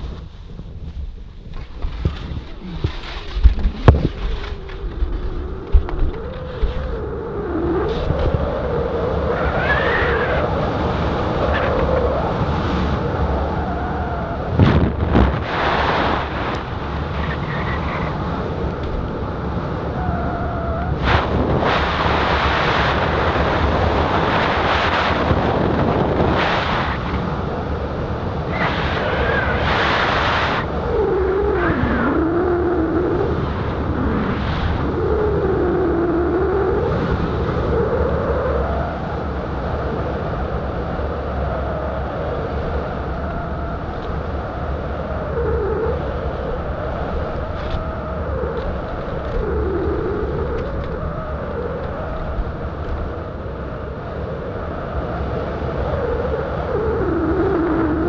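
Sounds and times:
wind rush on microphone: 0.0 - 58.0
wavering wind whistle: 3.8 - 58.0.

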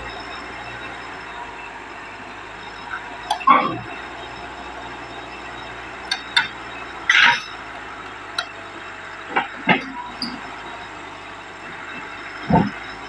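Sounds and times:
excavator diesel engine running: 0.0 - 13.0
steel tracks clanking on metal: 7.1 - 7.6.

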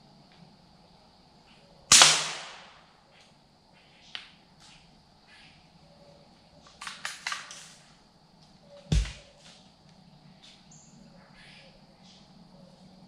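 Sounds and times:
gunshot: 1.9 - 2.8.

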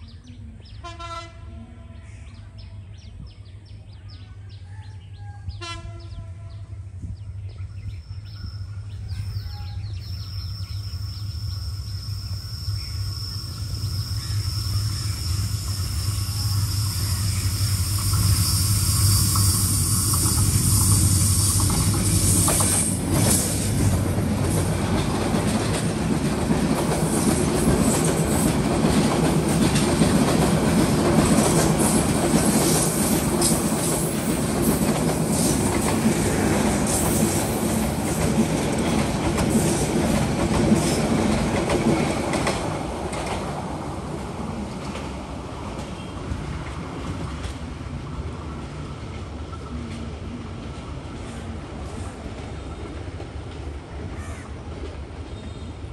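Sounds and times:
diesel locomotive drone: 0.0 - 55.9
train wheels rumbling: 4.9 - 55.9.

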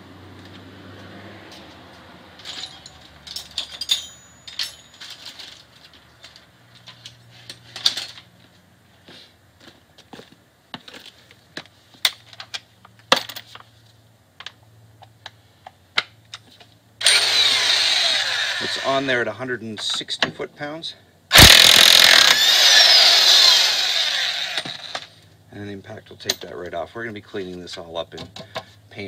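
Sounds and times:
metal tools clinking: 2.4 - 8.3.

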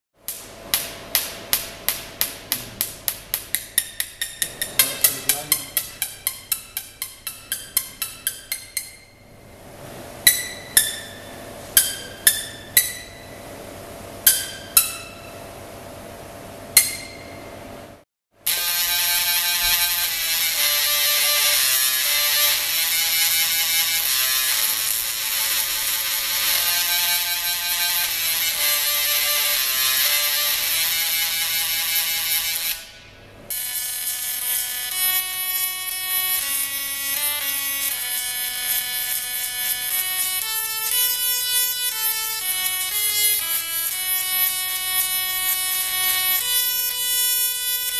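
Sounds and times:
struck ringing notes: 3.5 - 9.6, 10.2 - 15.6
singing tesla coil buzzy melody: 33.5 - 47.9.

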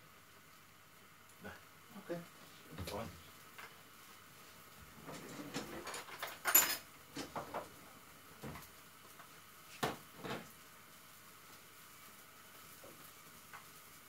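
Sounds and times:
utensils clattering: 5.2 - 6.8.

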